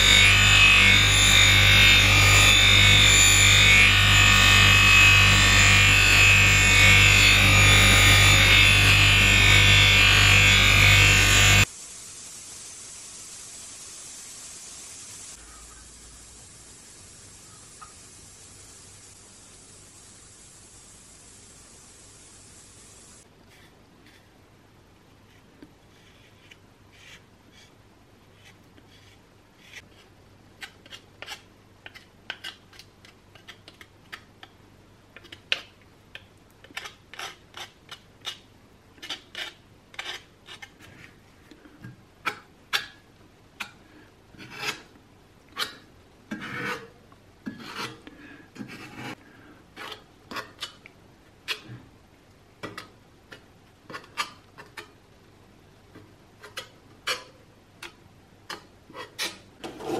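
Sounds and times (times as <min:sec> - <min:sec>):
putty knife scraping filler on metal: 0:45.6 - 0:49.2, 0:49.8 - 0:50.8, 0:52.6 - 0:55.0, 0:56.4 - 0:59.9.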